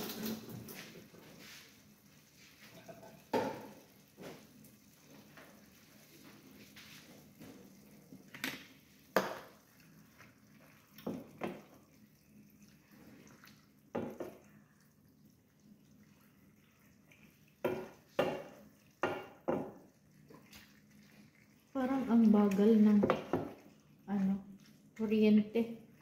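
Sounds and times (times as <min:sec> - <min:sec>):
pots and dishes clinking: 0:02.7 - 0:03.8
spatula knocking in a frying pan: 0:17.6 - 0:19.8.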